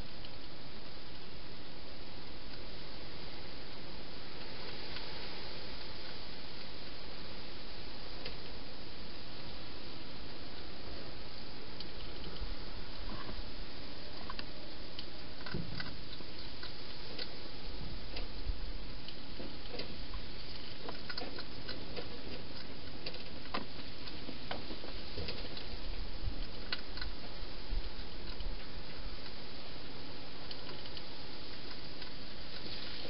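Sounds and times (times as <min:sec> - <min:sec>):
microphone hiss: 0:00.0 - 0:33.0
hedgehog chewing clicks and crunches: 0:19.0 - 0:29.4.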